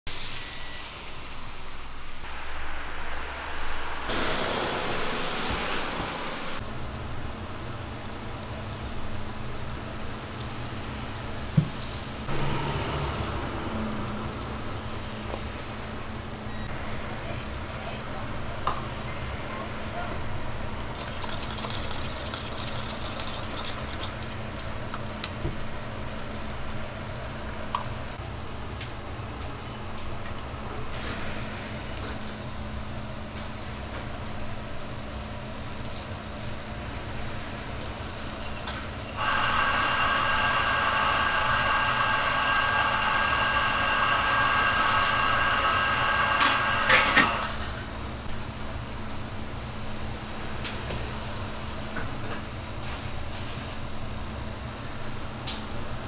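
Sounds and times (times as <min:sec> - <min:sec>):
loud steady hiss: 0:00.1 - 0:17.2, 0:39.1 - 0:52.7.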